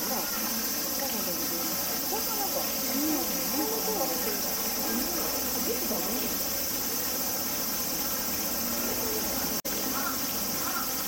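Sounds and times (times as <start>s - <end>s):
faint murmuring voices: 0.0s - 11.0s
insects shrilling: 0.0s - 11.0s.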